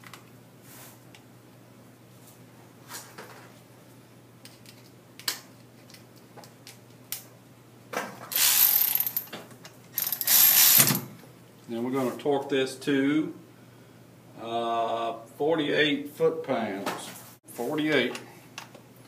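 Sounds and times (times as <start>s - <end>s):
ratchet wrench clicking: 8.3s - 9.3s, 10.0s - 11.0s.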